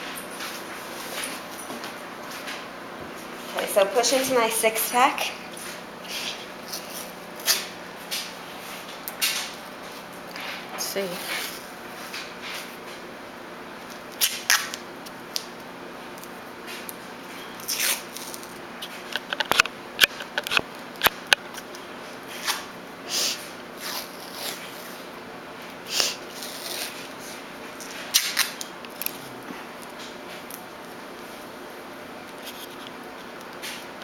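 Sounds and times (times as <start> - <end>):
tape peeling and rubbing: 6.0 - 9.6, 17.6 - 21.7, 23.8 - 25.0, 26.0 - 27.1, 32.4 - 32.9.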